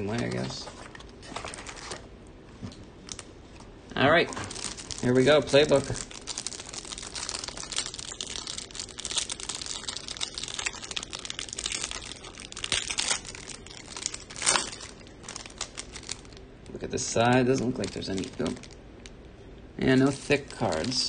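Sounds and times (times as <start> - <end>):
plastic wrap crinkling and tearing: 0.0 - 2.1, 3.0 - 19.2, 20.0 - 21.0.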